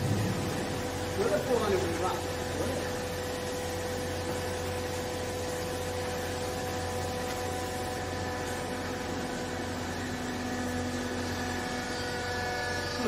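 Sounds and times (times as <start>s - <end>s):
hydraulic pump humming: 0.0s - 13.0s.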